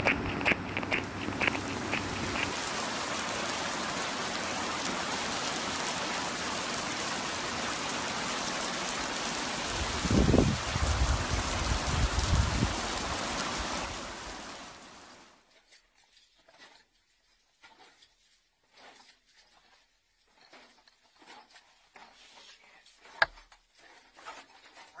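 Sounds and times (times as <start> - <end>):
heavy rain falling: 0.0 - 15.3.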